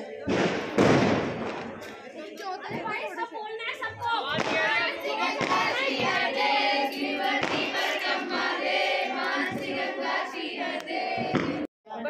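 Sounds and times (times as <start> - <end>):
women singing together: 3.9 - 11.7.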